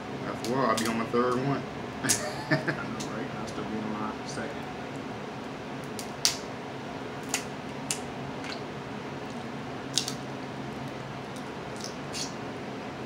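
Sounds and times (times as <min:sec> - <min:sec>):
crab shells cracking: 0:05.8 - 0:06.4, 0:07.2 - 0:08.6, 0:09.3 - 0:10.2, 0:10.8 - 0:12.3.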